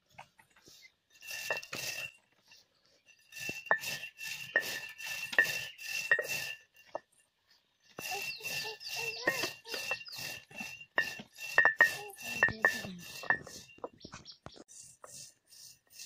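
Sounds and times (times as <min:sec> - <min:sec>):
stone roller scraping on grinding stone: 0:00.0 - 0:16.0.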